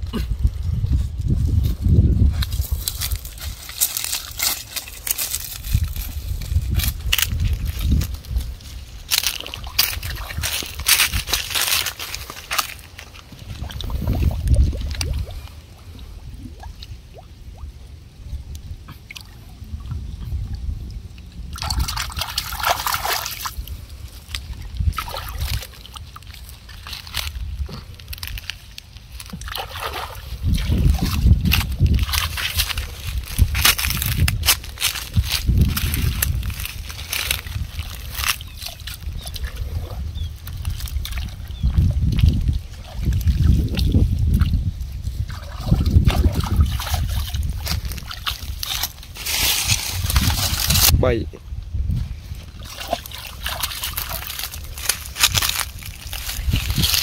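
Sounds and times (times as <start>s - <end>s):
low rumbling: 0.0s - 22.8s
muddy water sloshing and splashing: 0.0s - 51.0s, 51.6s - 57.0s
hands splashing in water: 21.5s - 23.6s, 24.3s - 27.3s, 29.2s - 32.9s, 52.6s - 57.0s.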